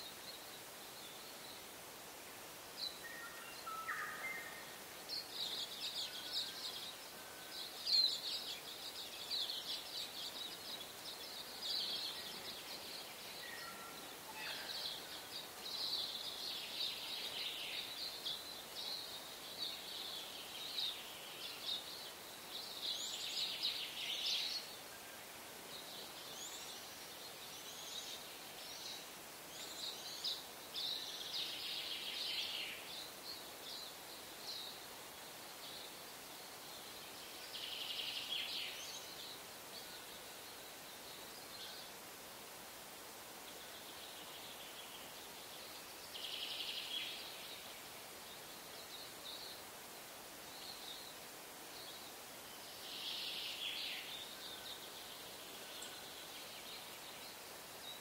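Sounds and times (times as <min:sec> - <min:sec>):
faint steady hiss: 0:00.0 - 0:58.0
small birds chirping: 0:00.0 - 0:58.0.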